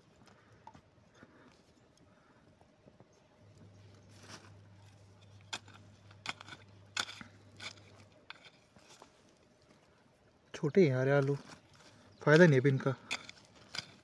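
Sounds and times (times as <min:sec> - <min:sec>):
faint low hum: 0:00.0 - 0:14.0
hoe crunching into soil: 0:03.7 - 0:09.8, 0:10.8 - 0:14.0.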